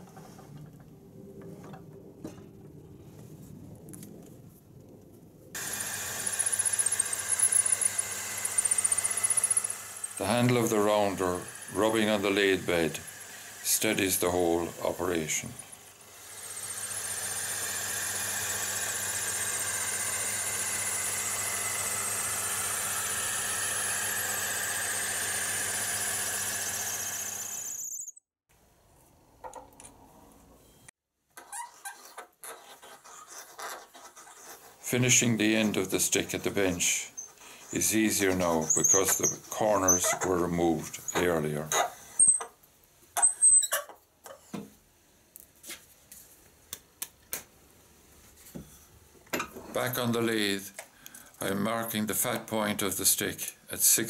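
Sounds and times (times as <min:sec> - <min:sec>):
lathe hum: 0:05.6 - 0:27.8
wood lathe tool squealing: 0:05.6 - 0:28.1, 0:31.4 - 0:42.6, 0:43.2 - 0:43.9
sharp high squeak: 0:27.7 - 0:28.2, 0:38.2 - 0:40.3, 0:43.2 - 0:43.9
wooden rounder rasping on wood: 0:31.4 - 0:40.5.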